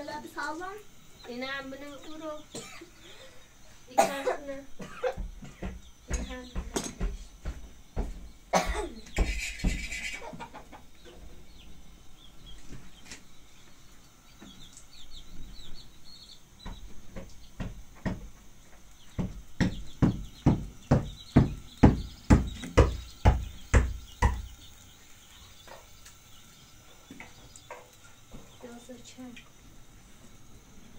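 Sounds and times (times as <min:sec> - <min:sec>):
knocks: 0:04.8 - 0:10.0, 0:16.6 - 0:24.6
faint bird chirps: 0:08.2 - 0:18.1, 0:18.7 - 0:29.6.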